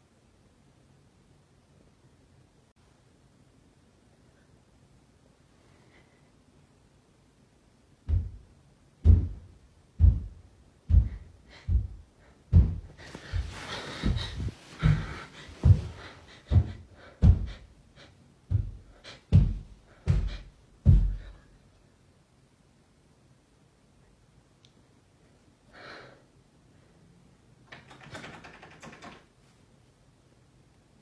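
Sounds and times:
heavy dull thumps: 8.0s - 17.7s, 18.4s - 21.4s
bedding rustling: 9.0s - 17.6s.

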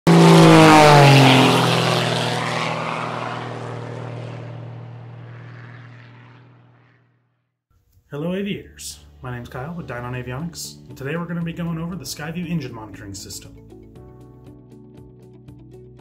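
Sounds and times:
propeller airplane flying past: 0.1s - 7.5s.

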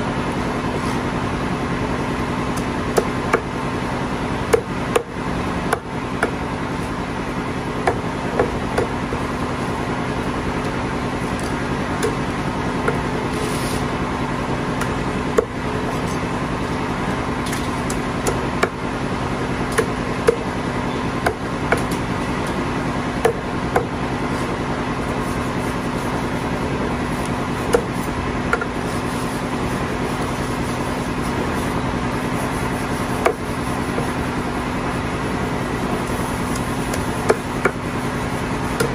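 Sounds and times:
steady mechanical hum: 0.0s - 38.9s
cleaver chopping on wooden block: 4.5s - 5.1s, 7.8s - 9.2s, 19.7s - 20.5s, 21.2s - 22.0s, 23.2s - 23.9s, 27.6s - 28.8s, 33.2s - 34.1s, 36.5s - 37.8s.

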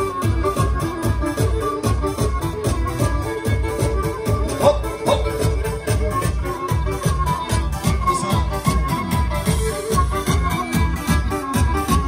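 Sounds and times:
bowed fiddle melody: 0.0s - 12.0s
instrumental folk dance music: 0.0s - 12.0s.

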